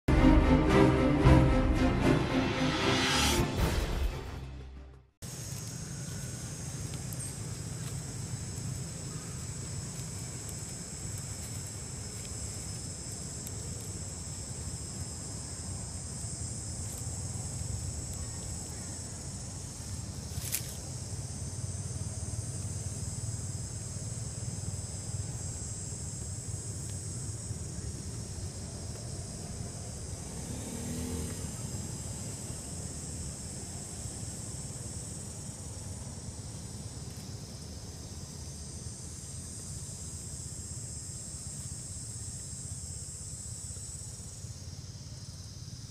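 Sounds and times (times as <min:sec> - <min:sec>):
insects trilling: 0:05.2 - 0:45.9.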